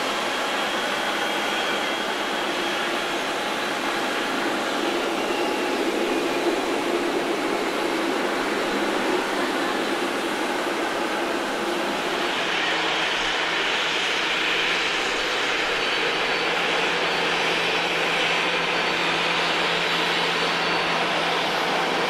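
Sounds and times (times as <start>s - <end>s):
jet engines whining and rushing: 0.0s - 22.0s.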